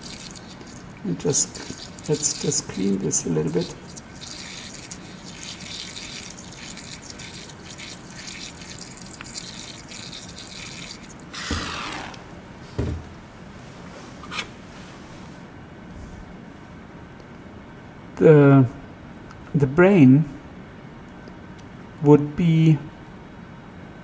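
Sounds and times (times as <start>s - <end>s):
water splashes and drips: 0.0s - 12.2s
wash bottle squirting water: 0.0s - 12.4s.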